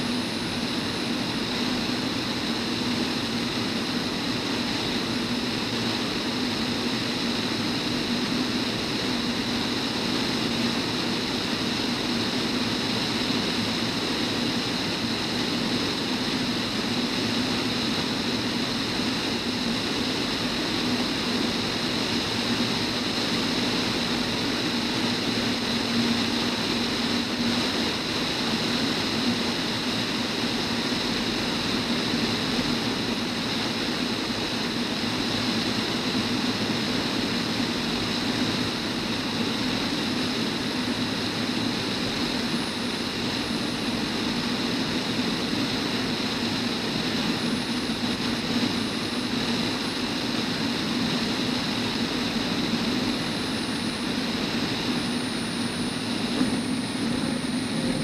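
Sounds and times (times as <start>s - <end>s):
plane engine and propeller drone: 0.0s - 58.0s
rushing airflow: 38.1s - 58.0s.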